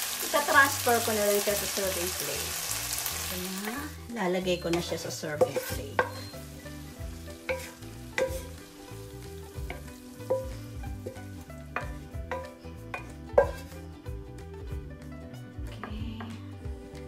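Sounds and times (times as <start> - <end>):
soft background music: 0.0 - 17.0
wooden spatula scraping a pan: 4.7 - 6.4, 7.4 - 8.8, 9.6 - 13.8.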